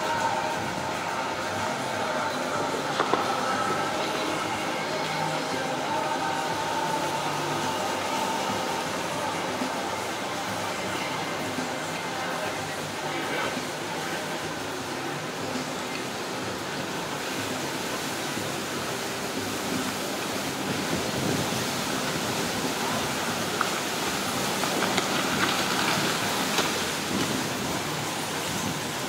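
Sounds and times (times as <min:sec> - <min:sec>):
water splashing against rocks: 0:00.0 - 0:29.0.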